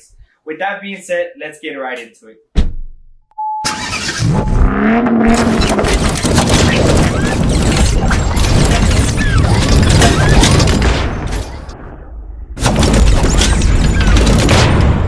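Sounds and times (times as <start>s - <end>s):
crashing shattering hits: 5.3s - 11.8s.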